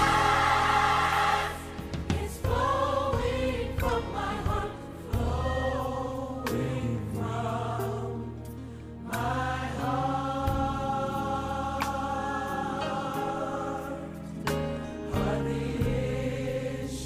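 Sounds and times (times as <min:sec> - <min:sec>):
choir singing held chords: 0:00.0 - 0:17.0.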